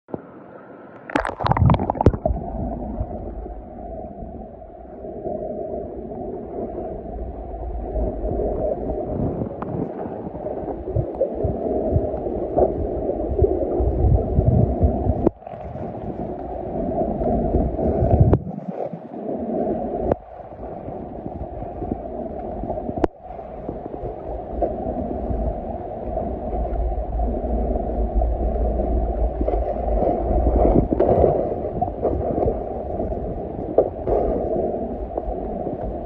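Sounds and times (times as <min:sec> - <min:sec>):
underwater gurgling and rushing: 0:00.1 - 0:36.0
water splash: 0:01.0 - 0:03.6
low rumbles: 0:01.0 - 0:18.6.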